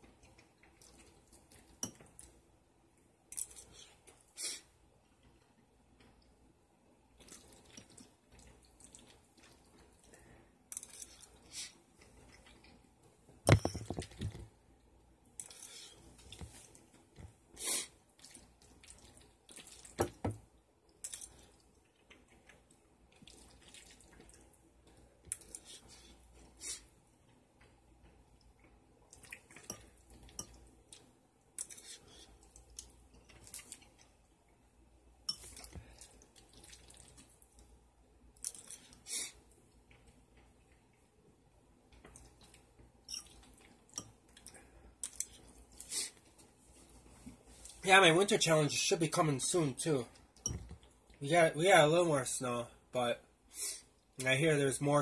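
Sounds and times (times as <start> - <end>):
wet chewing and mouth smacking: 7.2 - 12.9, 18.1 - 20.0, 20.9 - 26.6, 27.2 - 34.6, 35.3 - 37.7, 38.3 - 41.1.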